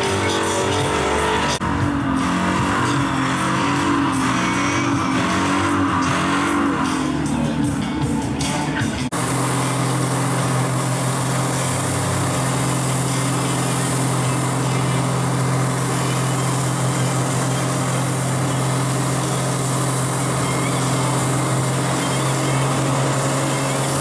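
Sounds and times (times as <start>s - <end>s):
engine at high revs: 0.0s - 24.0s
tyres spinning with hiss: 9.1s - 24.0s.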